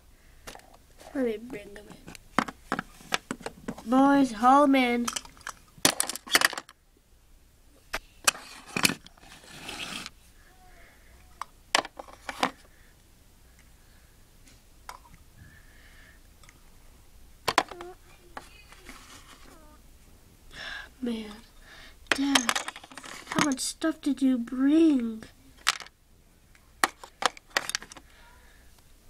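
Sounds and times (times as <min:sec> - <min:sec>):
scraping rustle: 0:08.3 - 0:10.2, 0:18.2 - 0:19.8, 0:22.5 - 0:23.4
plastic toy pieces clicking: 0:22.1 - 0:23.6, 0:25.6 - 0:25.9.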